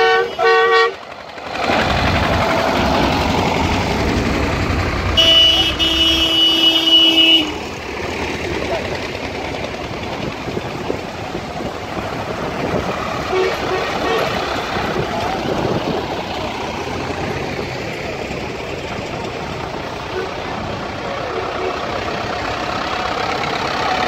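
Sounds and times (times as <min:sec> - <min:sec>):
horn toot and blast: 0:00.0 - 0:01.0, 0:05.1 - 0:07.7, 0:13.2 - 0:14.4
tractor diesel engine passing: 0:00.0 - 0:24.0.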